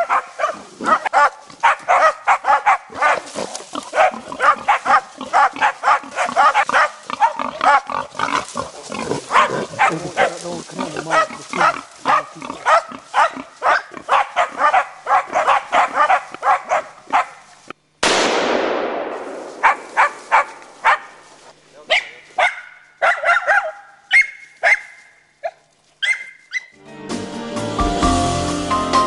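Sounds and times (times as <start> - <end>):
dogs barking and yelping: 0.0 - 17.5, 19.6 - 21.3, 21.9 - 26.8
rifle shot with echo: 18.0 - 20.7.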